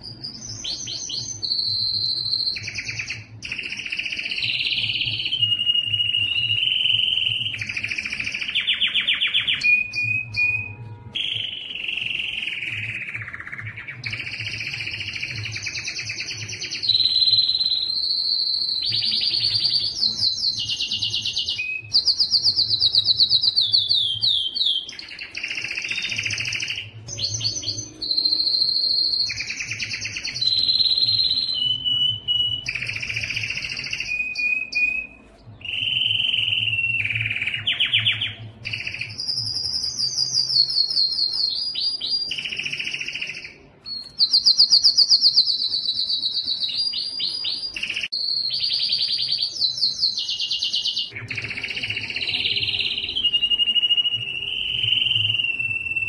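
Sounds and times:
canary singing: 0:00.0 - 0:56.0.

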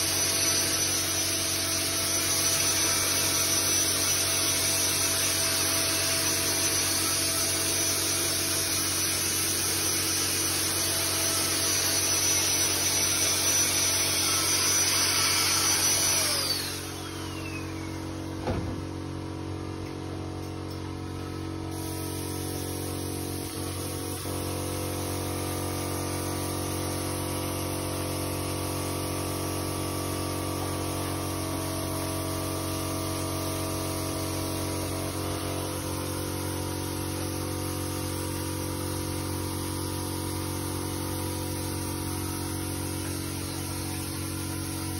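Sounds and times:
electric motor whining: 0:11.0 - 0:18.5
low machine hum: 0:14.9 - 0:27.2.

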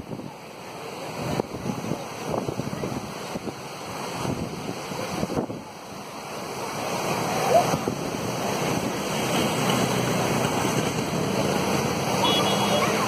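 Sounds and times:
floodwater rushing over rocks: 0:00.0 - 0:13.0
wind buffeting microphone: 0:01.2 - 0:05.8, 0:07.1 - 0:12.2.

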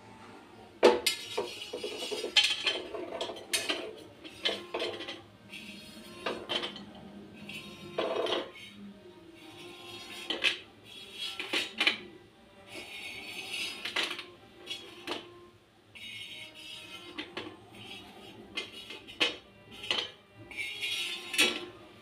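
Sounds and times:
pieces dropping onto metal plate: 0:00.8 - 0:05.2
knife scraping on metal pan: 0:00.9 - 0:08.8, 0:09.4 - 0:15.4, 0:16.0 - 0:21.8.

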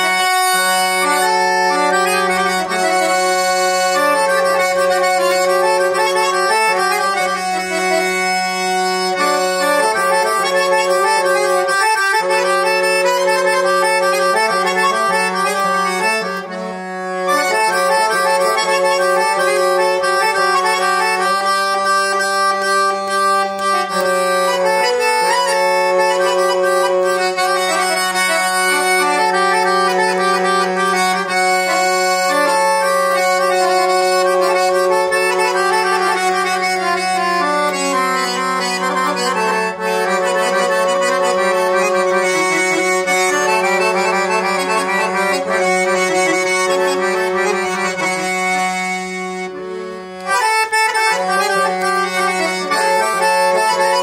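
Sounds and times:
accordion melody over drone: 0:00.0 - 0:54.0.

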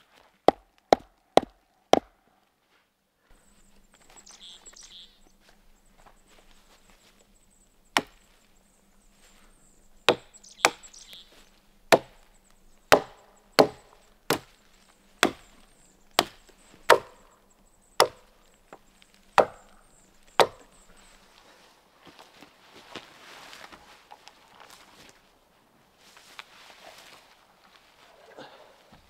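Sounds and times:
wood being chopped: 0:00.5 - 0:02.1, 0:07.9 - 0:08.3, 0:10.1 - 0:10.9, 0:11.9 - 0:12.3, 0:12.9 - 0:14.6, 0:15.2 - 0:17.3, 0:18.0 - 0:20.8.

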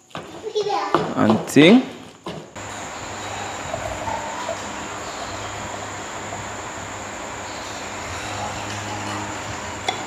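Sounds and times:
high-pitched whine: 0:02.6 - 0:10.0
low hum: 0:02.6 - 0:10.0.

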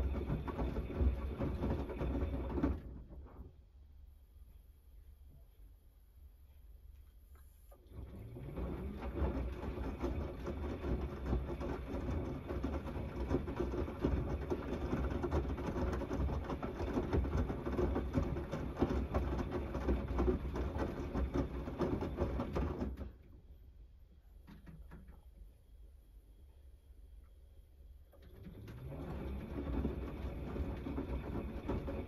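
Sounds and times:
wet laundry sloshing in drum: 0:00.0 - 0:03.6, 0:07.8 - 0:23.3, 0:28.2 - 0:32.0
washing machine motor running: 0:00.0 - 0:03.8, 0:07.7 - 0:23.8, 0:27.7 - 0:32.0.

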